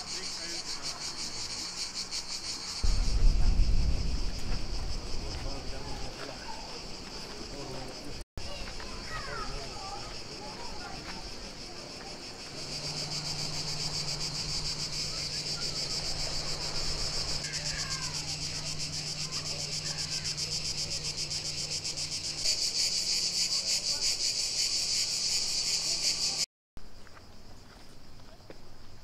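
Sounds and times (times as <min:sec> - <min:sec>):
cicadas calling: 0:00.0 - 0:28.1
faint chirps: 0:08.0 - 0:26.4.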